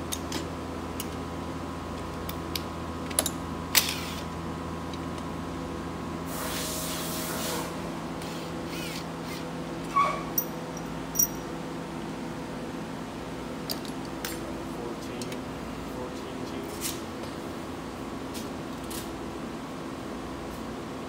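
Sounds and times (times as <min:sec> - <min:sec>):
steady fan hum: 0:00.0 - 0:21.0
metal tool clinks: 0:10.4 - 0:11.4.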